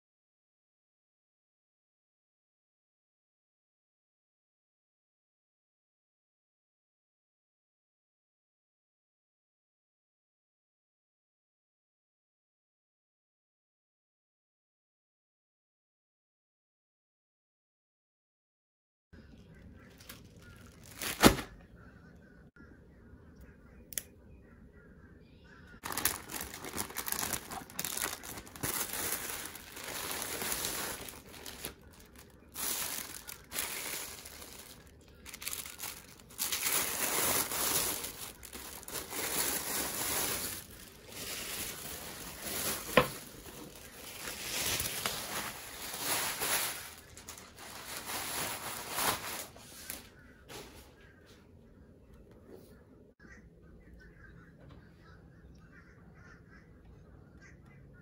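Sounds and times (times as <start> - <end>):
tissue paper crinkling: 20.0 - 21.5, 25.8 - 50.1.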